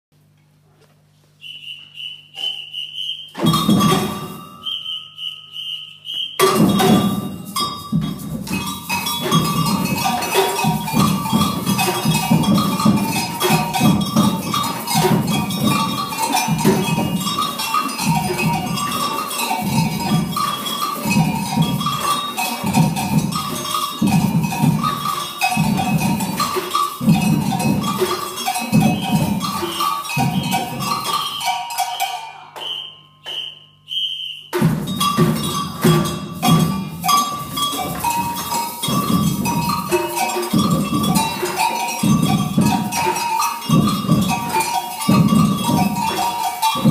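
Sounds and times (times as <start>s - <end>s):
short high whistle notes: 1.4s - 6.6s, 31.1s - 34.6s
samba percussion band: 1.4s - 33.6s, 34.4s - 46.9s.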